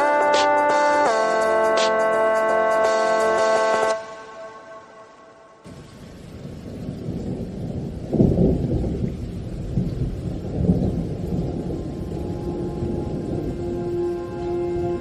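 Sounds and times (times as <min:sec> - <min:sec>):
low rolling thunder: 0:05.7 - 0:15.0.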